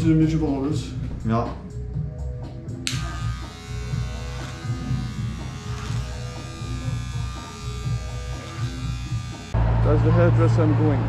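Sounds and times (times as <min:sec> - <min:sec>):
electric hair clippers buzzing: 0:02.8 - 0:09.6.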